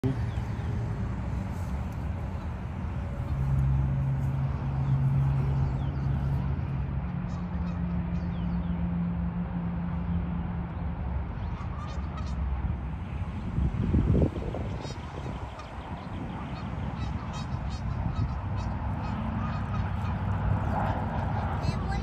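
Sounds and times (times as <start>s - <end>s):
geese honking: 7.0s - 8.3s, 11.4s - 12.5s, 14.5s - 22.0s.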